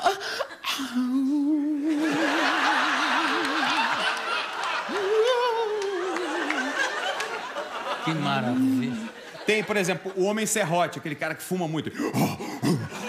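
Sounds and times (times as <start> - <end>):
audience laughter: 1.9 - 10.3
man imitating a ghostly wail: 4.9 - 6.7.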